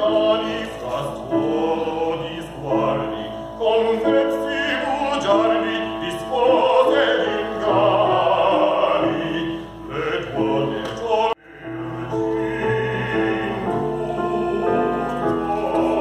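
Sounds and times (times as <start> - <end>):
operatic singing with vibrato: 0.0 - 16.0
instrumental accompaniment: 4.2 - 16.0.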